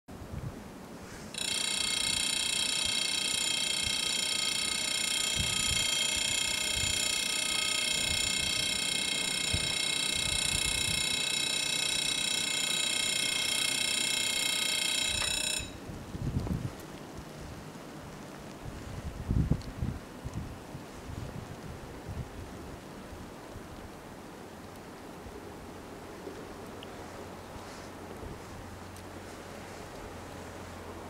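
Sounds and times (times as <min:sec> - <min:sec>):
level crossing bells ringing: 0:01.4 - 0:15.8.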